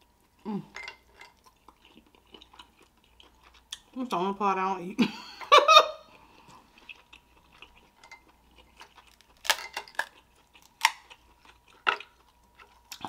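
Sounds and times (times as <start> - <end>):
chewing: 0.1 - 4.0, 6.1 - 13.0
crab shell cracking: 9.1 - 11.2.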